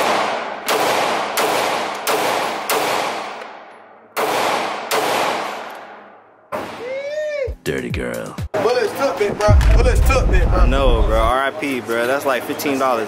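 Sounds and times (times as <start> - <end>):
pistol shots echoing indoors: 0.0 - 6.8.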